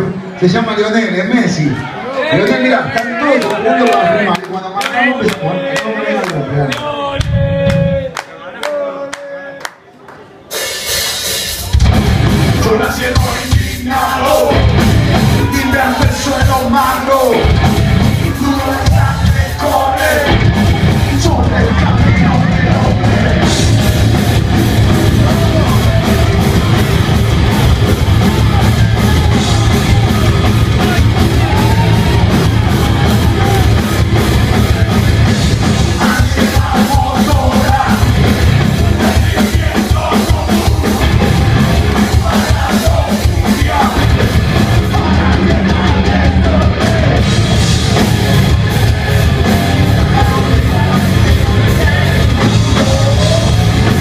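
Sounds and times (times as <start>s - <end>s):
singer shouting vocals: 1.3s - 9.8s, 12.6s - 26.9s, 27.5s - 47.4s, 48.6s - 54.0s
distorted guitars: 10.5s - 54.0s
pounding drum kit: 10.5s - 54.0s
bass guitar: 11.3s - 54.0s.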